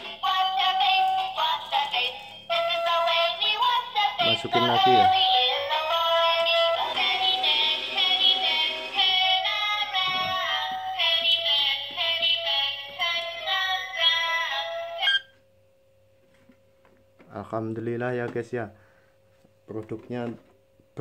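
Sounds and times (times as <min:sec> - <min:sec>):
toy electronic tune from small speaker: 0:14.7 - 0:15.3.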